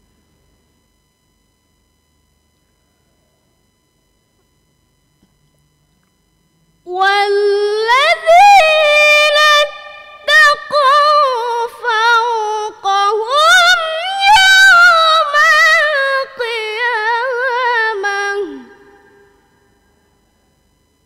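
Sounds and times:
girl reciting melodically: 6.9s - 18.9s.

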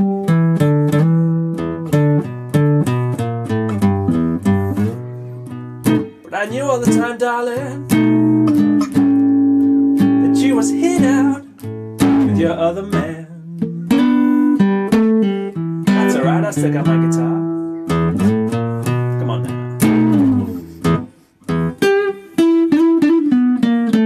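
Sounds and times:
classical guitar playing slow blues: 0.0s - 24.0s.

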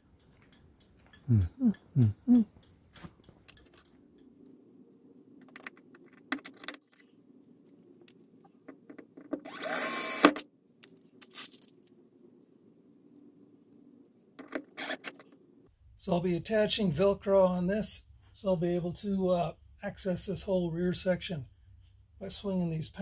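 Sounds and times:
tool clicks and taps: 0.1s - 1.9s
cordless drill burst: 9.4s - 10.4s, 14.8s - 15.0s.

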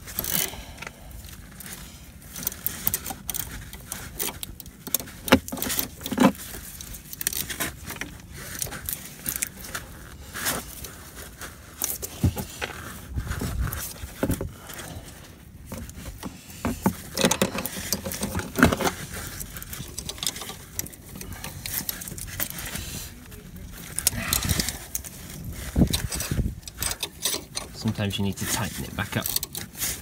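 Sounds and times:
spanners clicking and knocking on metal: 15.7s - 18.9s, 25.8s - 27.8s.

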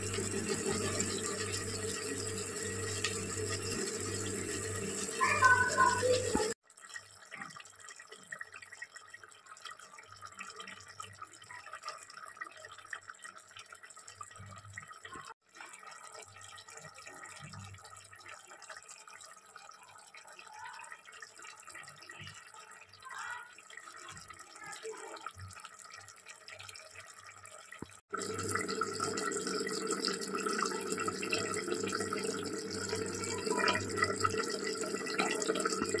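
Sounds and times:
curry bubbling in a pot: 0.0s - 36.0s.

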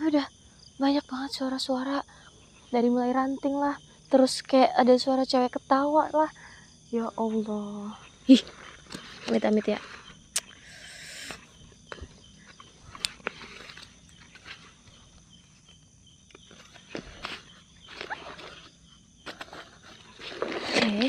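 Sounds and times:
high insect chirr: 0.0s - 21.0s
backpack rustling on dry leaves: 12.7s - 15.6s, 16.4s - 21.0s.

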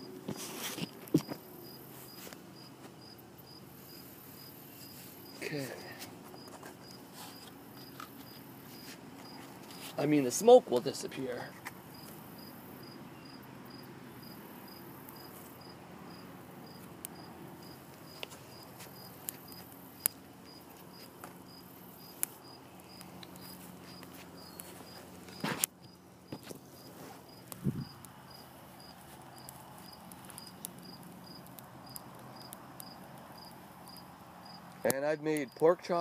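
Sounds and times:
cricket chirping: 1.1s - 5.4s, 11.9s - 34.6s
kindling popping and crackling: 16.8s - 35.7s.

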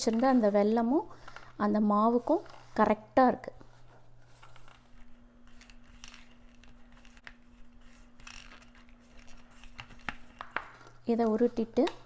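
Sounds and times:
dough rustling and scraping: 0.0s - 1.0s, 1.9s - 3.0s, 3.6s - 11.6s.

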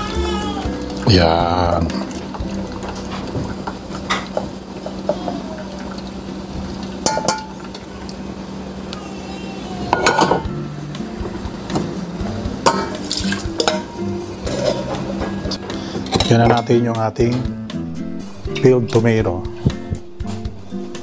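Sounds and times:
liquid draining: 0.0s - 9.0s, 11.2s - 15.5s
metal strainer clinking on pot: 7.0s - 7.8s, 12.6s - 15.0s.

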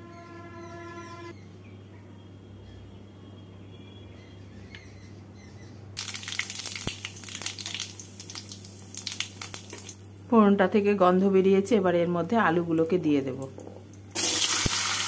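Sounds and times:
seeds sizzling in hot oil: 6.0s - 10.0s, 14.1s - 15.0s.

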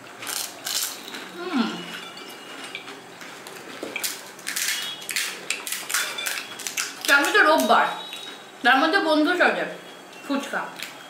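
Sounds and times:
crisp shells crunching with chewing: 0.1s - 1.9s, 2.6s - 8.2s
voice humming: 1.3s - 1.9s.

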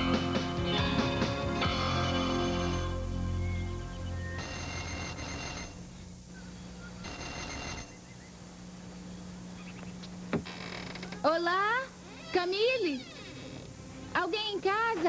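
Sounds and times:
background music: 0.0s - 4.9s, 13.6s - 15.0s
doorbell ringing: 2.0s - 3.0s, 4.4s - 5.8s.

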